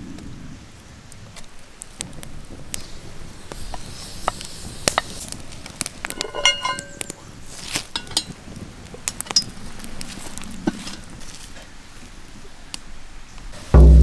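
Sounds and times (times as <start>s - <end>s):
wood fire crackling and popping: 0.0s - 13.6s
metal clinks of pot and chains: 6.1s - 7.0s.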